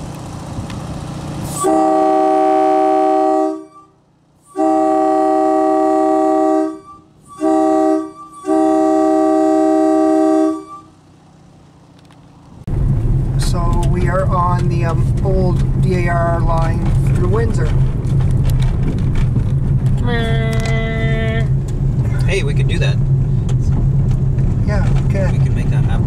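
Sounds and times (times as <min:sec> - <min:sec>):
railway air horn blasts: 0:01.4 - 0:11.2.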